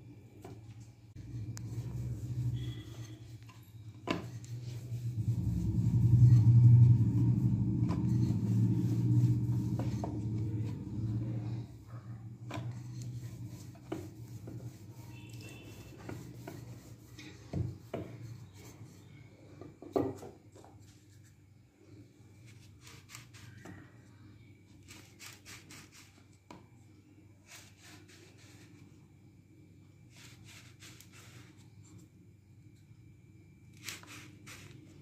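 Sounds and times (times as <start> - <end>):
rolling pin rumbling over dough: 0.4 - 20.8.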